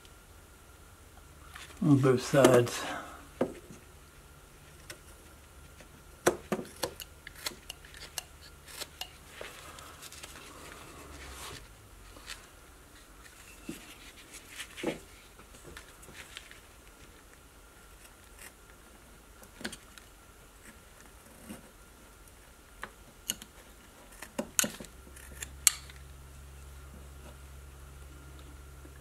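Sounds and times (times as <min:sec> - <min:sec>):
knife scraping cuts in wood: 0:06.6 - 0:09.2.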